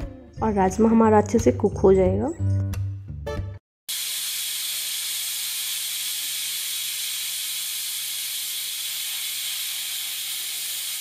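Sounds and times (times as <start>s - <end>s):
pressure cooker hissing steam: 3.9s - 11.0s.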